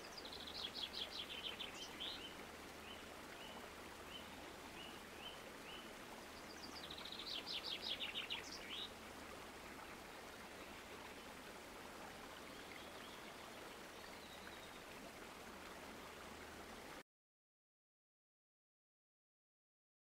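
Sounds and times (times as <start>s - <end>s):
outdoor background hiss: 0.0s - 17.0s
bird chirping: 6.5s - 8.9s.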